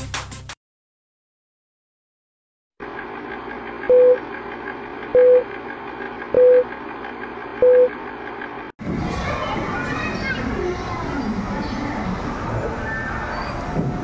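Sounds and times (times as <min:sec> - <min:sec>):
short loud beeps: 0:06.4 - 0:06.6, 0:07.6 - 0:07.9.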